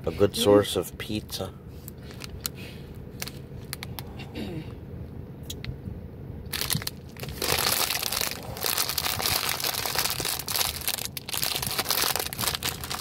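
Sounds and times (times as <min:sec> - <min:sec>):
plastic snack bag crinkling: 0:06.5 - 0:13.0.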